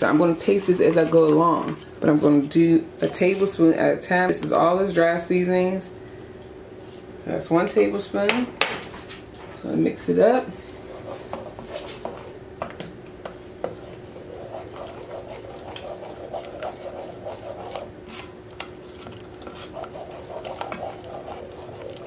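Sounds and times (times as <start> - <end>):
faint steady hum: 0.0 - 22.0
spatula clicking and scraping pot: 12.7 - 22.0.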